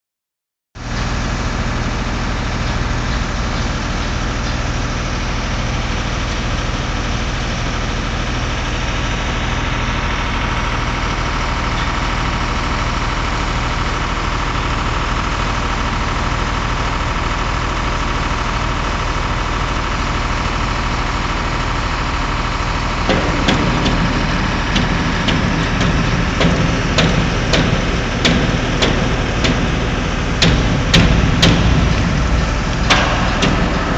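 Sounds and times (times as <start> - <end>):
engine idling: 0.8 - 33.9
sharp clicks and knocks: 23.1 - 33.9.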